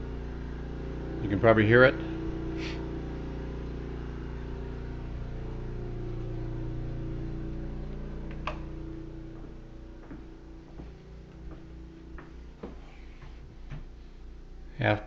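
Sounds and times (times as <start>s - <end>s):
generator engine running: 0.0s - 15.0s.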